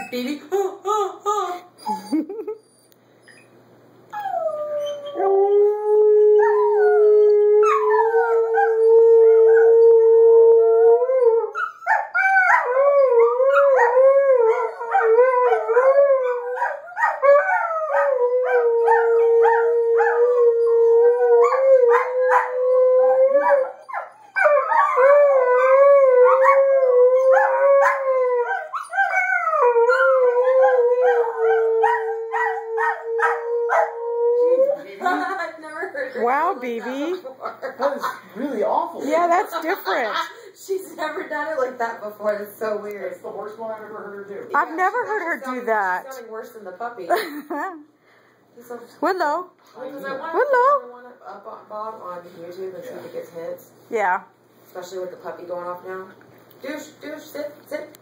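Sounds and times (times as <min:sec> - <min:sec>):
dog howling: 0:04.2 - 0:34.8.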